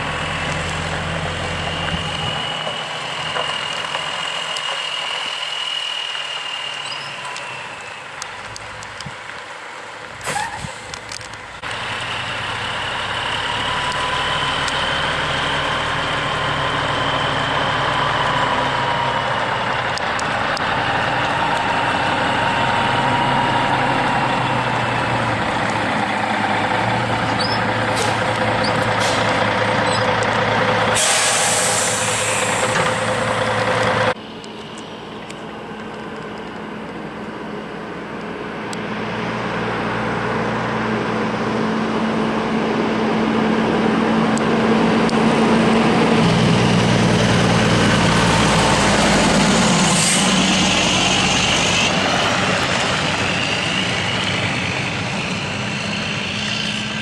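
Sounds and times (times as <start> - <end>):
heavy truck engine under load: 0.0 - 57.0
loud air hiss: 31.0 - 33.3.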